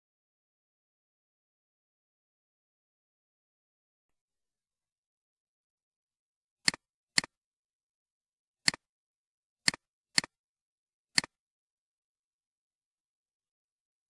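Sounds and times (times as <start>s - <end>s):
computer mouse clicks: 6.6s - 7.3s, 8.7s - 8.9s, 9.7s - 10.4s.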